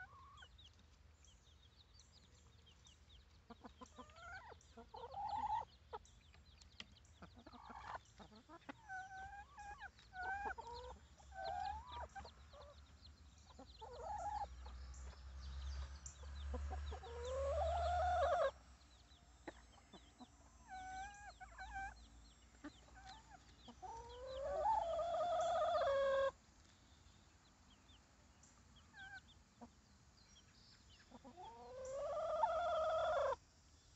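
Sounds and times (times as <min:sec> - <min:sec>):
chickens clucking: 0:00.0 - 0:33.4
chicken long rising calls: 0:16.6 - 0:18.6, 0:23.8 - 0:26.4, 0:31.3 - 0:33.4.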